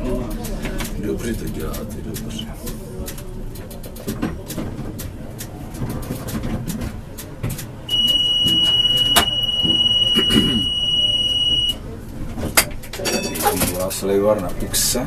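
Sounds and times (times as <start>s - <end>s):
low cab rumble: 0.0s - 15.0s
high-pitched electronic warning tone: 7.9s - 11.8s.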